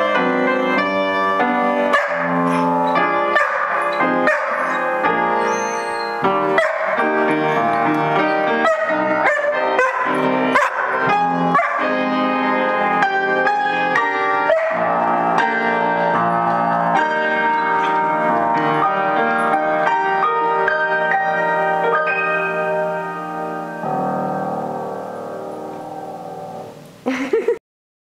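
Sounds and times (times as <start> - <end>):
upright piano playing: 0.0 - 27.0
dog vocalizing: 3.4 - 7.6.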